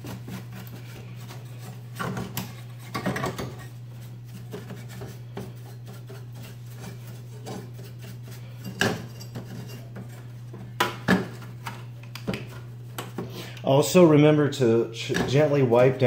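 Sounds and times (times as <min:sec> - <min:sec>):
brush bristles rubbing: 0:00.0 - 0:08.7
steady low hum: 0:00.0 - 0:16.0.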